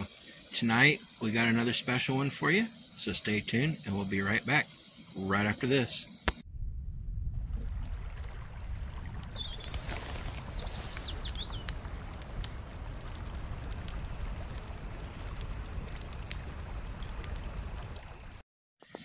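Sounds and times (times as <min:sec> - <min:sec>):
birds chirping: 0:08.8 - 0:11.7.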